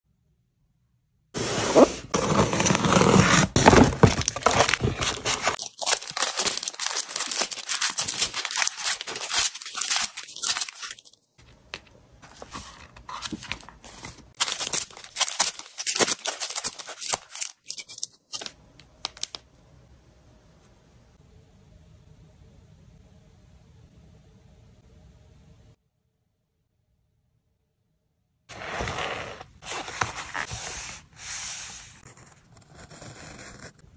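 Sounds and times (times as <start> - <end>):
cardboard mailer tearing open: 1.4 - 11.2, 12.4 - 18.5
plastic packaging crinkling: 2.2 - 19.4.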